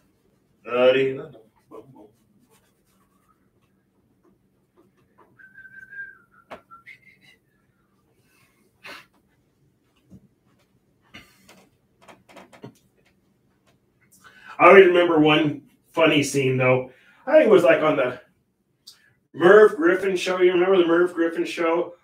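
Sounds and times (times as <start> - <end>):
man whistling softly: 5.4 - 7.4
faint clicks and rustles: 8.0 - 14.2.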